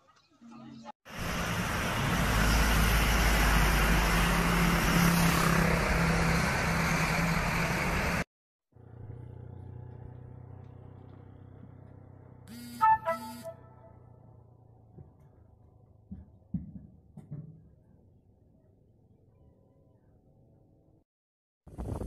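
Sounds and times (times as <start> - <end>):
heavy truck passing: 1.1 - 12.5.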